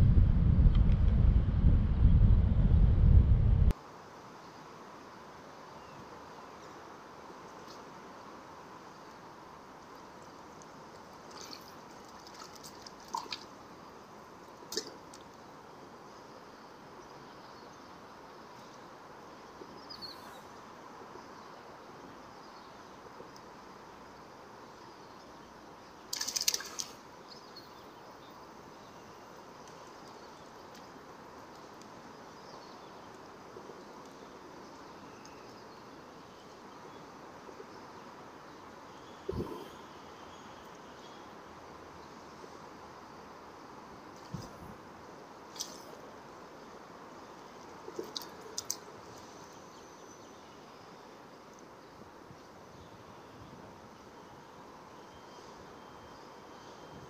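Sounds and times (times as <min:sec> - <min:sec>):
river background noise: 0:03.7 - 0:57.0
steady background hiss: 0:03.7 - 0:57.0
fish splashing in water: 0:26.1 - 0:27.0.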